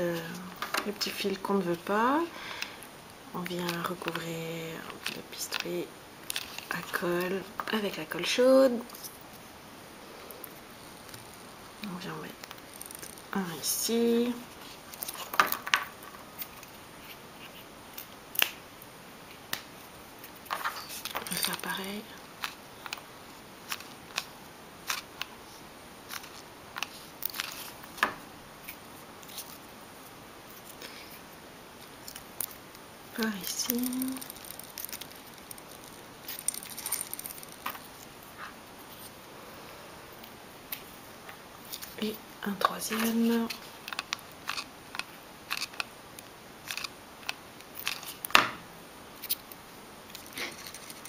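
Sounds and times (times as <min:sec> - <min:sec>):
small clicks and crackles: 0:03.4 - 0:07.8, 0:10.3 - 0:18.6, 0:26.1 - 0:29.6, 0:31.8 - 0:39.1, 0:40.2 - 0:48.4, 0:49.2 - 0:51.0.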